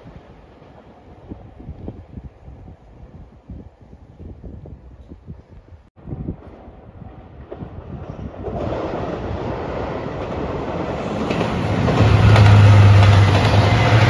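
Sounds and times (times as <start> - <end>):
diesel train passing: 6.2 - 14.0
train wheels on rails: 6.3 - 14.0.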